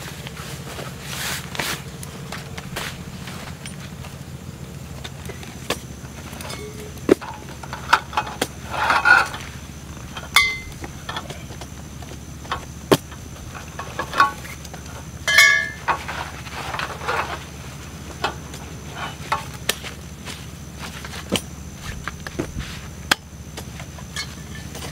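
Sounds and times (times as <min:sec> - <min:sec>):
ringing metallic clinks: 0:06.4 - 0:07.0, 0:10.2 - 0:11.4, 0:15.2 - 0:16.0, 0:24.1 - 0:24.9.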